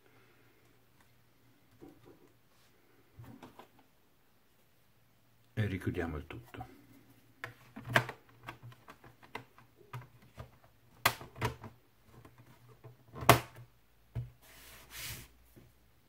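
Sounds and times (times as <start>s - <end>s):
plastic snaps: 7.4s - 11.7s.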